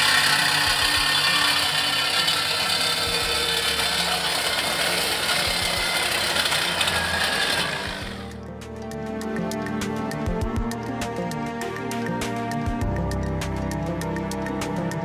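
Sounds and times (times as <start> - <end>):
reciprocating saw cutting metal: 0.0 - 8.4
background music: 0.0 - 15.0.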